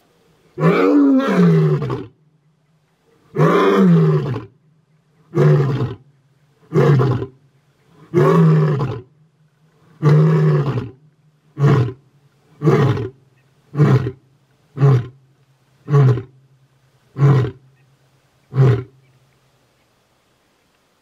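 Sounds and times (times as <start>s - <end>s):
lion roaring: 0.6s - 2.2s, 3.2s - 4.6s, 5.3s - 6.0s, 6.6s - 9.1s, 9.8s - 11.0s.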